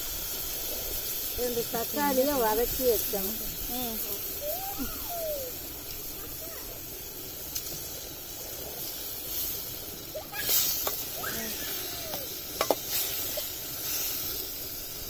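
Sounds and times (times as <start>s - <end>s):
tomato sizzling in hot oil: 0.0s - 15.0s.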